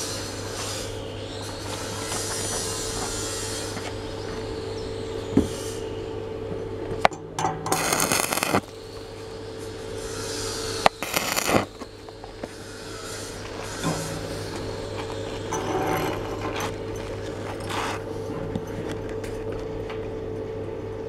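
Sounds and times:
welding machine electrical hum: 0:00.0 - 0:21.0
welding arc crackling and sizzling: 0:06.9 - 0:19.6.

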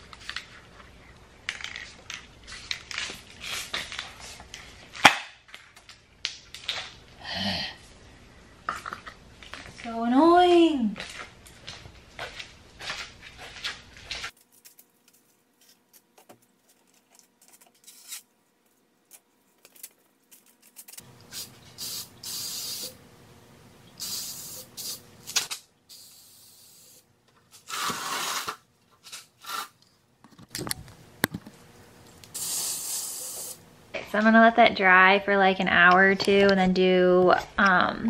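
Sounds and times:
spray paint can hissing: 0:21.2 - 0:23.0, 0:24.0 - 0:27.0, 0:32.3 - 0:33.6.

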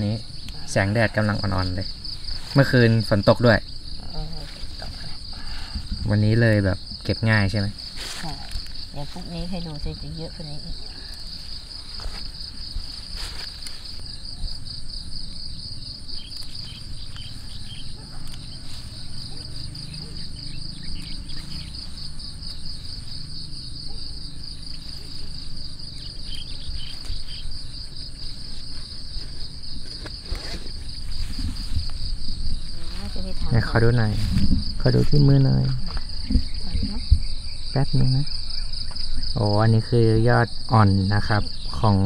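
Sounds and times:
insects trilling: 0:00.0 - 0:42.0.

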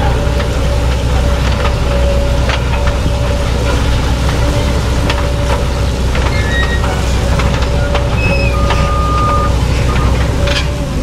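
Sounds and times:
harvester engine drone: 0:00.0 - 0:11.0
machinery clicks and rattles: 0:00.0 - 0:11.0
machinery squeaks: 0:00.1 - 0:11.0
whistle-like squeal: 0:08.2 - 0:09.6.

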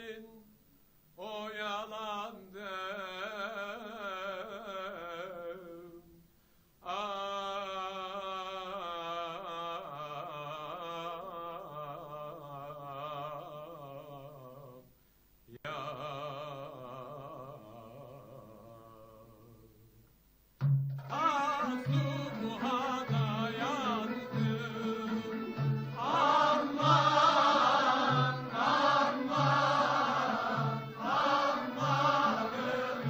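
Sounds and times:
person singing ornamented melody: 0:15.5 - 0:19.9, 0:21.0 - 0:33.0.

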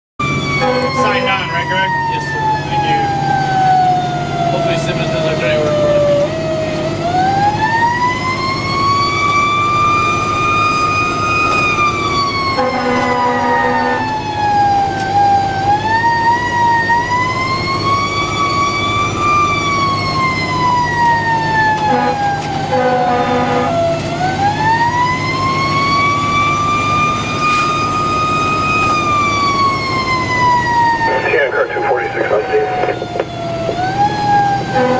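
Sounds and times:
mechanical siren wailing: 0:00.2 - 0:34.9
truck engine humming: 0:00.2 - 0:34.9
horn blasts: 0:00.6 - 0:01.4, 0:12.5 - 0:14.1, 0:21.8 - 0:24.0, 0:34.6 - 0:34.9.

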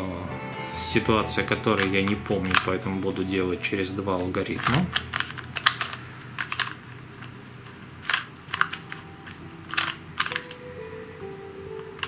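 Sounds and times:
plastic puzzle layers clacking: 0:01.7 - 0:03.1, 0:04.2 - 0:10.7, 0:11.8 - 0:12.0.

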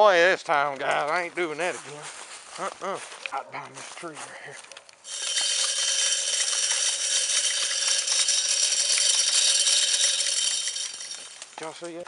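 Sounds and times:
corn kernels scattering: 0:05.0 - 0:12.0
feeder motor spinning: 0:05.1 - 0:11.6.

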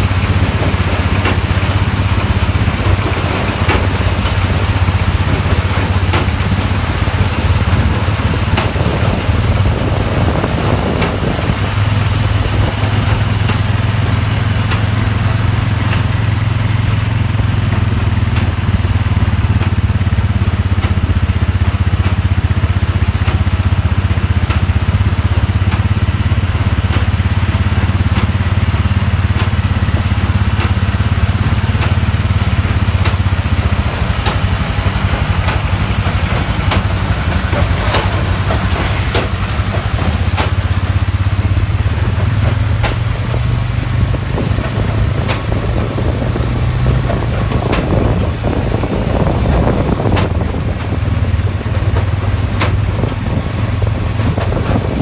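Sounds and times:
baler mechanism clicks and knocks: 0:00.0 - 0:55.0
tractor diesel engine under load: 0:00.0 - 0:55.0.

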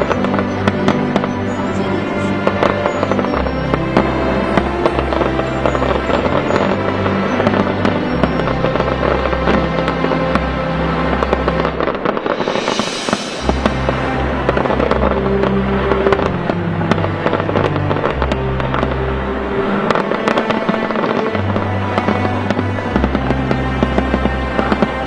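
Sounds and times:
fireworks bursting: 0:00.0 - 0:19.0, 0:19.7 - 0:25.0
firework hissing: 0:11.1 - 0:16.3.

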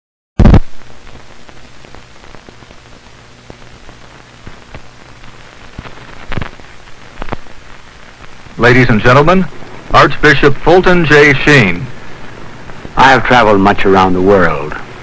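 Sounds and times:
loud pop: 0:00.4 - 0:00.8
analogue recording hiss and crackle: 0:00.4 - 0:15.0
steady low hum: 0:00.4 - 0:15.0.

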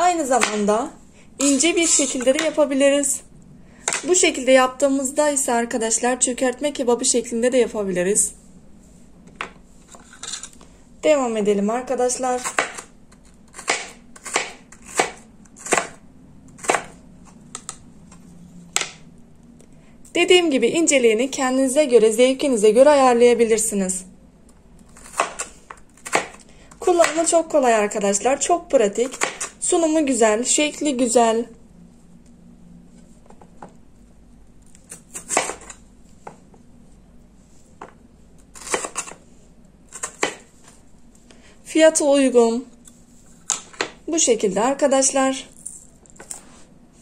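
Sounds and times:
blade chopping potato on board: 0:00.2 - 0:00.7, 0:12.4 - 0:16.0, 0:16.6 - 0:17.0, 0:24.9 - 0:27.3, 0:29.0 - 0:29.6, 0:34.9 - 0:35.8, 0:38.6 - 0:39.2, 0:39.9 - 0:40.5.

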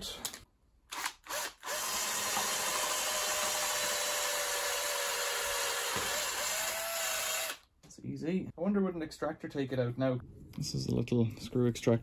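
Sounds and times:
cordless drill drilling into bolt: 0:00.9 - 0:07.6.

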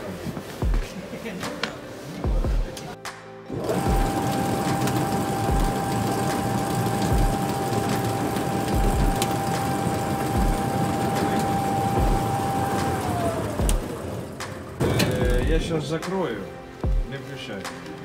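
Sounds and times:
machine clattering with a whine: 0:03.5 - 0:15.7.

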